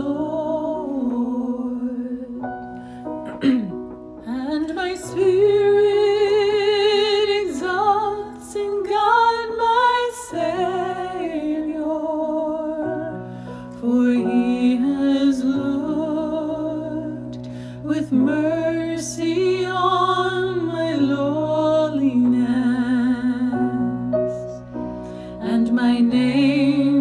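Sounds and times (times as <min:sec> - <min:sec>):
woman singing with vibrato: 0:13.8 - 0:24.1, 0:25.4 - 0:27.0.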